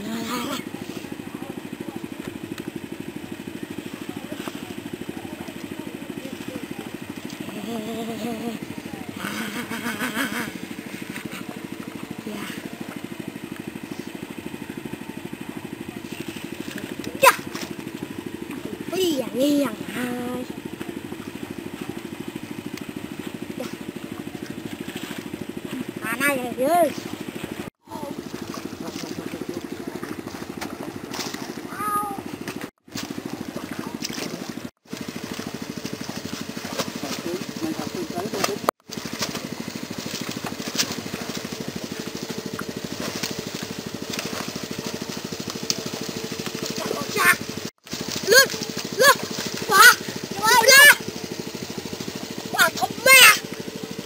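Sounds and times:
small engine idling: 0.0s - 54.0s.

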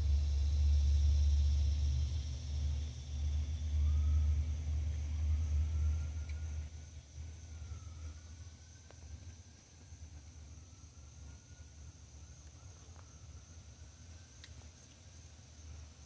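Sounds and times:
distant siren rising and falling: 3.1s - 14.4s.

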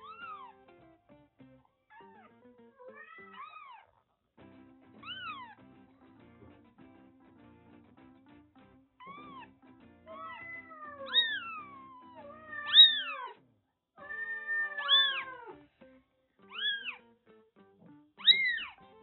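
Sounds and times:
soft background music: 0.0s - 3.7s, 4.4s - 13.3s, 14.0s - 19.0s
kitten mewing: 1.9s - 3.9s, 5.0s - 5.6s, 9.0s - 13.4s, 14.0s - 15.6s, 16.4s - 17.1s, 18.2s - 18.8s.

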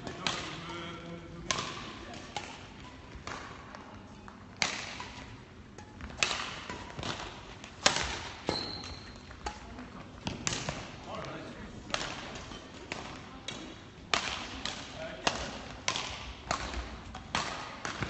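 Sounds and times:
racket hitting shuttlecock: 0.0s - 0.8s, 1.4s - 3.8s, 4.5s - 10.9s, 11.9s - 18.0s
brief high squeak: 8.5s - 9.2s.

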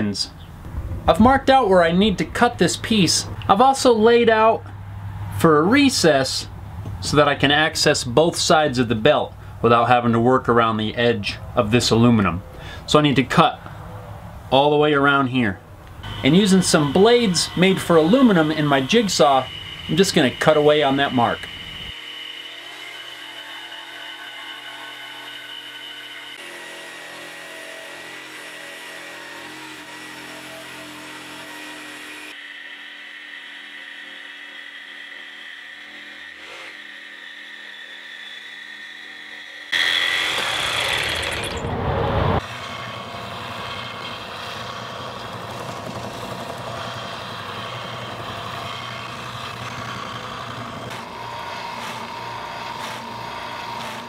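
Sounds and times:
belt sander sanding metal: 16.0s - 41.5s, 42.4s - 54.0s
jigsaw cutting metal: 16.0s - 41.8s, 42.4s - 54.0s.

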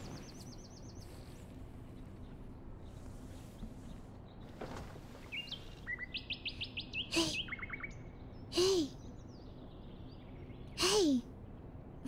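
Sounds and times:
small birds chirping: 0.0s - 12.0s
short breathy voice sounds: 7.1s - 7.4s, 8.5s - 9.0s, 10.8s - 11.3s.

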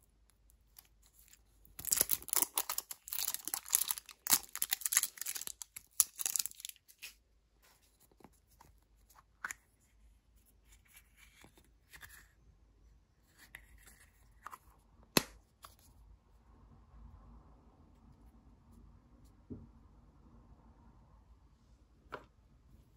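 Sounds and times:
plastic capsule clicks and rustles: 0.7s - 7.2s
plastic crinkling and tearing: 0.8s - 7.2s.

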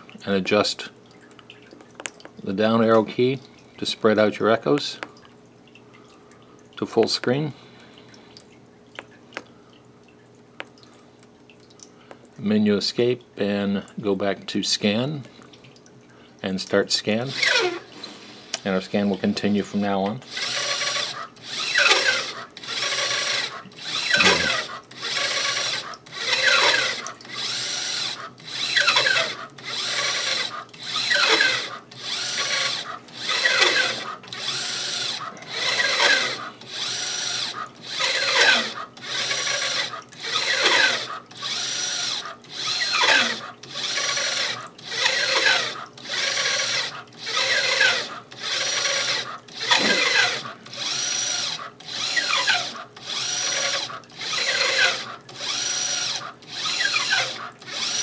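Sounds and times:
pulsing motor whine: 20.3s - 58.0s.

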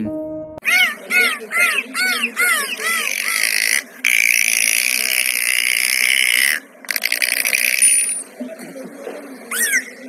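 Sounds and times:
dolphin high squealing whistle: 9.5s - 10.0s
dolphins chirping whistles: 9.5s - 10.0s.

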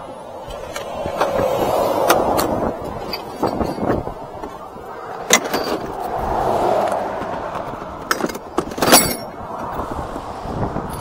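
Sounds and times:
highway traffic passing: 0.0s - 11.0s
tools clanking: 0.4s - 6.2s, 7.2s - 9.7s.

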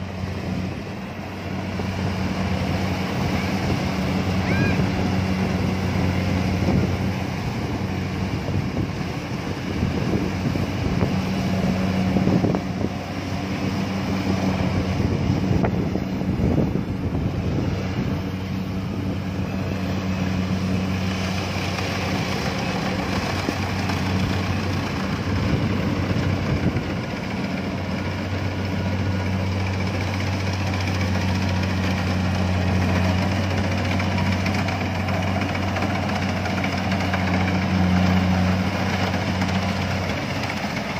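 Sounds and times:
combine harvester engine droning: 0.0s - 40.9s.

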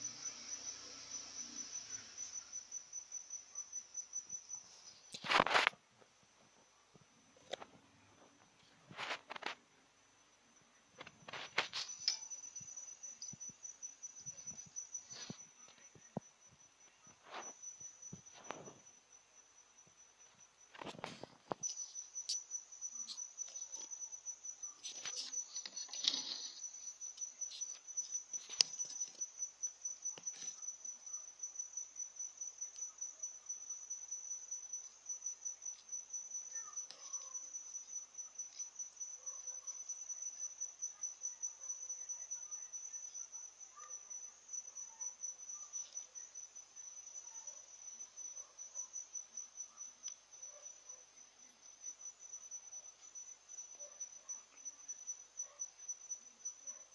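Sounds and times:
cricket chirping: 0.0s - 56.9s
clicks and rustles: 5.1s - 5.8s, 8.5s - 9.6s, 11.0s - 12.4s, 24.7s - 29.3s.

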